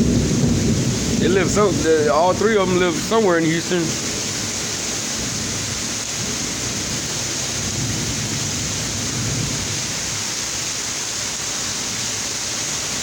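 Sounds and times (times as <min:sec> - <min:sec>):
low rumble of thunder: 0:00.0 - 0:10.3
heavy rain pouring: 0:00.0 - 0:13.0.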